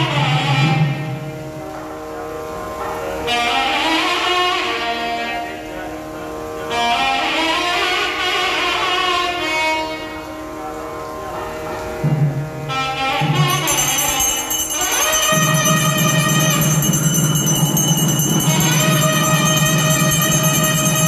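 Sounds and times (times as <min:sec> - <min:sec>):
steady drone: 0:12.9 - 0:21.0
gliding melody line: 0:13.2 - 0:21.0
high ringing: 0:13.2 - 0:21.0
low beats: 0:13.3 - 0:21.0.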